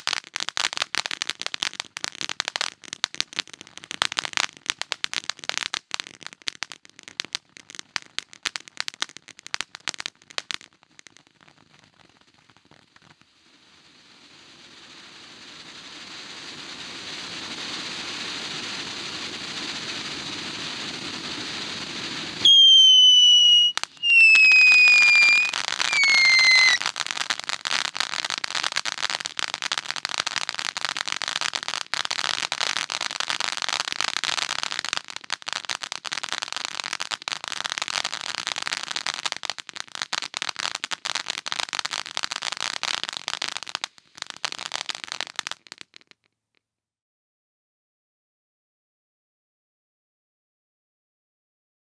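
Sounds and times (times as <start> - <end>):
firework crackling: 0.0 - 46.3
firework hissing: 11.5 - 30.4, 40.6 - 45.6
firework whistles: 12.1 - 27.1.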